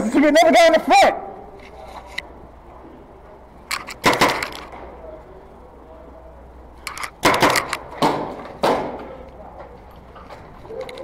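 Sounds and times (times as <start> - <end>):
gunfire cracks: 4.0 - 4.6.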